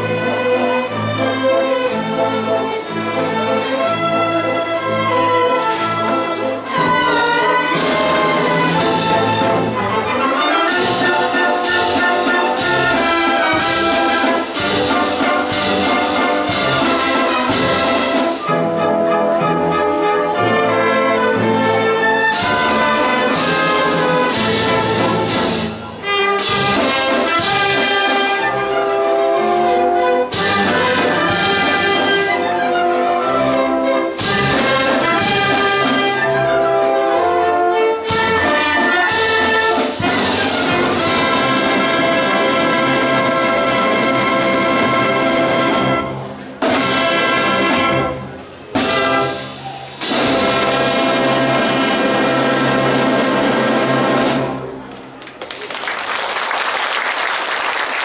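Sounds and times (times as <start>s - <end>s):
orchestra playing a waltz: 0.0s - 55.4s.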